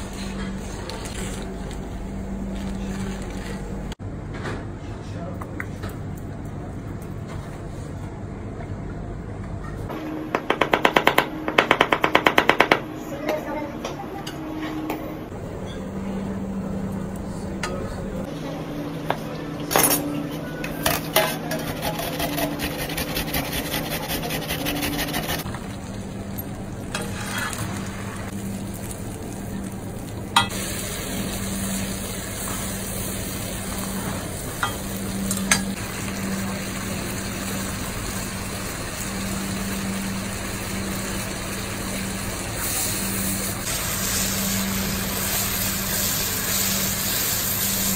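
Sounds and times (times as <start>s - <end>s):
tomato scraped on metal grater: 21.5s - 25.4s
sauce sizzling in a frying pan: 30.5s - 33.8s, 35.8s - 47.9s.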